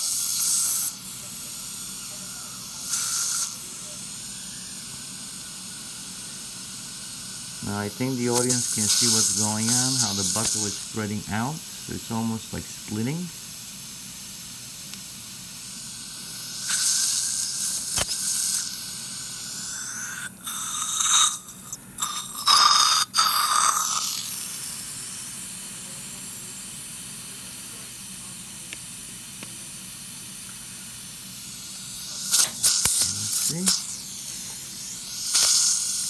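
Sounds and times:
surgical suction hissing: 0.0s - 13.3s, 14.1s - 28.5s, 29.3s - 36.0s.

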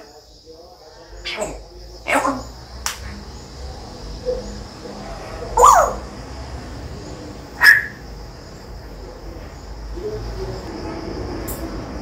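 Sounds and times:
parrot calls: 1.2s - 2.6s, 5.4s - 6.1s, 7.6s - 8.0s.

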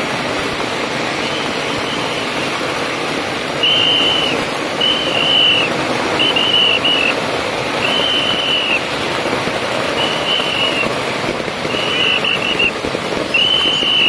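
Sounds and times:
firecrackers crackling: 0.0s - 14.0s
whistle blasts: 1.1s - 2.6s, 3.6s - 9.0s, 9.8s - 11.0s, 11.6s - 14.0s.

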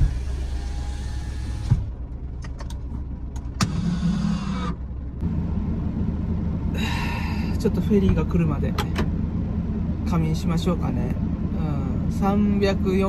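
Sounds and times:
electric window whirring: 0.0s - 2.7s, 3.4s - 4.9s
truck engine idling: 0.0s - 13.0s.

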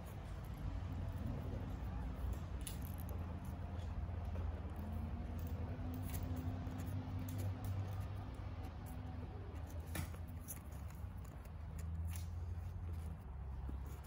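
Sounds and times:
cat licking and grooming: 0.0s - 14.0s.

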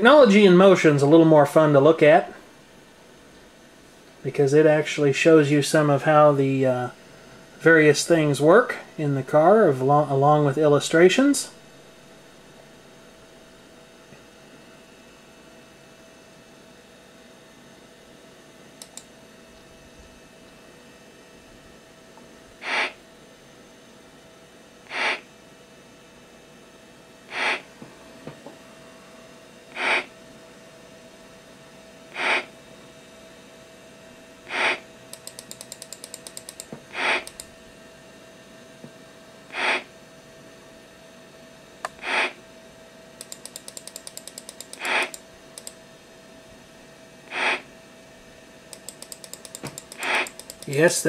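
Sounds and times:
faint computer hum: 0.0s - 51.0s
computer speaker noise bursts: 22.6s - 23.0s, 24.9s - 25.2s, 27.3s - 27.6s, 29.7s - 30.1s, 32.2s - 32.5s, 34.5s - 34.8s, 36.9s - 37.3s, 39.5s - 39.9s, 41.9s - 42.4s, 44.8s - 45.2s, 47.3s - 47.6s, 50.0s - 51.0s
light clicks: 43.2s - 45.8s.

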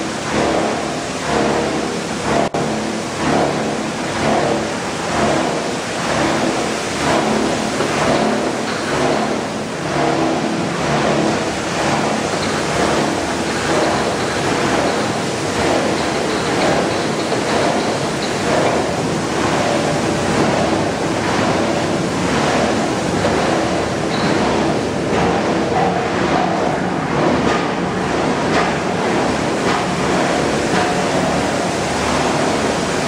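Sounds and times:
steady machine hum: 0.0s - 33.0s
water churning in tank: 0.0s - 33.0s.

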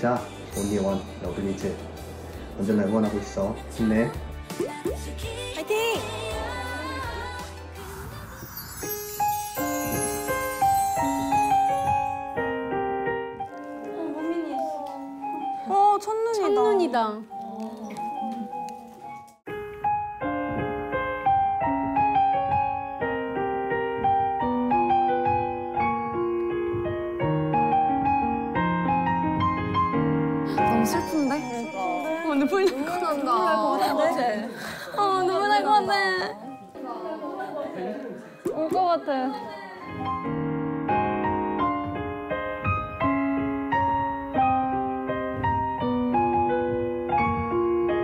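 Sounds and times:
slow gentle piano melody: 8.4s - 34.2s, 39.7s - 48.0s.

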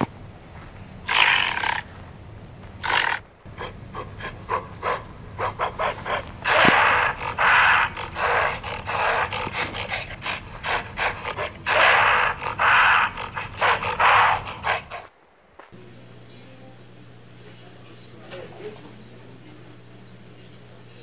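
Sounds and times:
low steady hum: 0.0s - 18.2s
rough animal calls: 1.0s - 2.0s, 2.7s - 15.1s.

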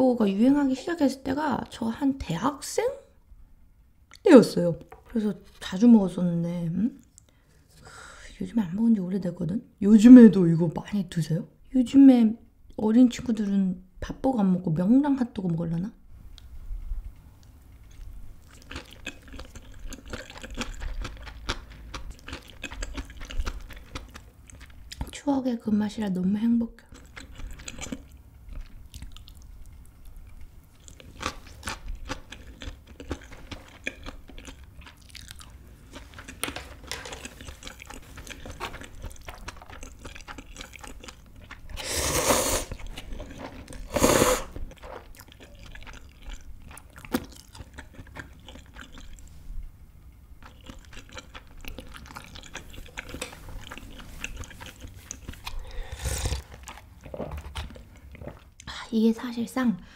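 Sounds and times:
close-up chewing: 16.4s - 25.2s, 26.8s - 58.7s
slurping broth: 41.7s - 45.1s, 54.0s - 57.6s
slurping noodles: 41.7s - 45.1s, 54.0s - 57.4s.

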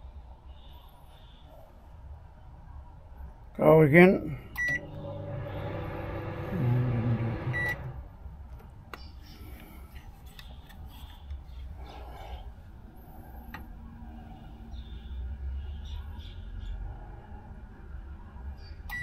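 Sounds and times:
microwave oven humming: 4.5s - 8.2s
microwave beep: 4.6s - 8.1s.

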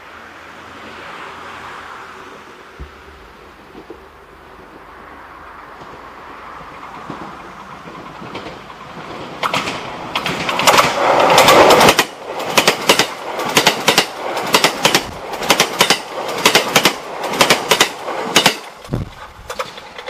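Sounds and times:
train rushing past: 0.0s - 20.0s
wheels clicking over rail joints: 5.6s - 20.0s.

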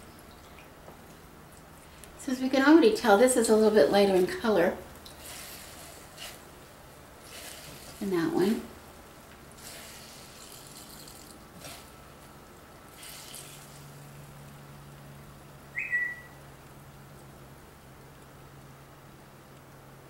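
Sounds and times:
low steady hum: 0.0s - 20.0s
liquid trickling and splashing: 0.2s - 1.8s, 7.2s - 8.2s, 9.5s - 14.3s
short high squeak: 15.8s - 16.4s.

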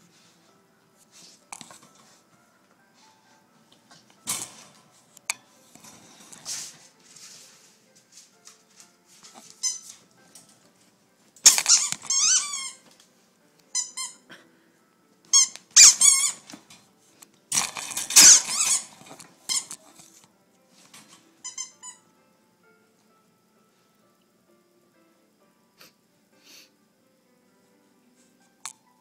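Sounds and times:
squeaky toy squeaking: 9.6s - 9.9s, 11.4s - 12.8s, 13.8s - 14.2s, 15.3s - 16.4s, 18.1s - 18.9s, 19.5s - 19.8s, 21.4s - 22.0s.

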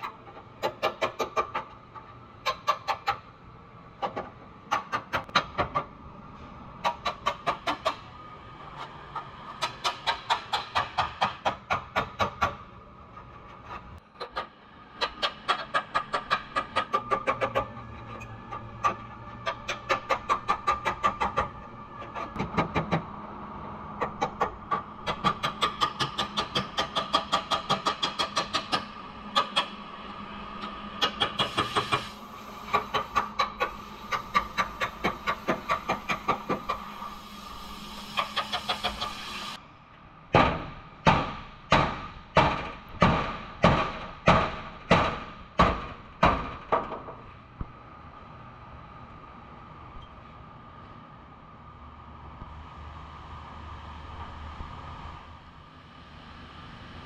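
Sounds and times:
hammer on sheet metal: 40.4s - 46.9s.

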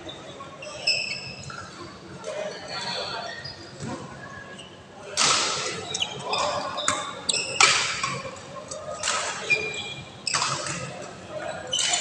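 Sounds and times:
shoes squeaking on court floor: 0.0s - 1.8s, 5.8s - 8.2s, 9.0s - 12.0s.

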